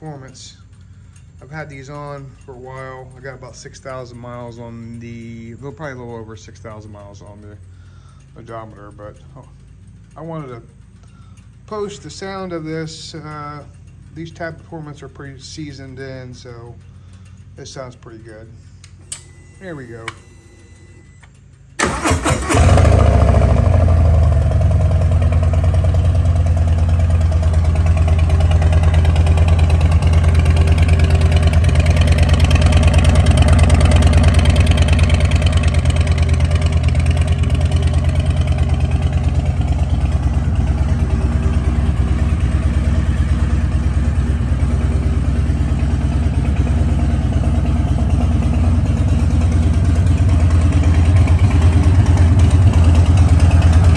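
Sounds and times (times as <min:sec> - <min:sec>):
motorcycle engine idling: 0:00.0 - 0:18.8, 0:21.4 - 0:53.9
starter cranking: 0:21.2 - 0:53.9.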